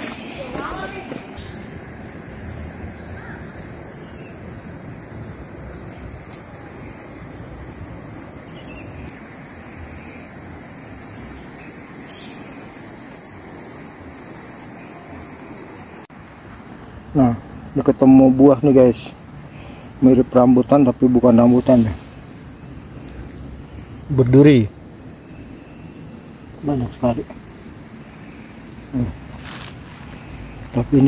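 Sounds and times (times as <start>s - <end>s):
high-pitched insect drone: 1.4s - 16.1s.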